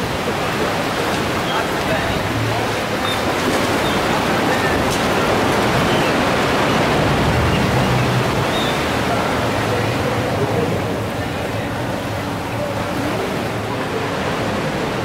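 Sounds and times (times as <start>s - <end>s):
sea surf breaking on shore: 0.0s - 15.0s.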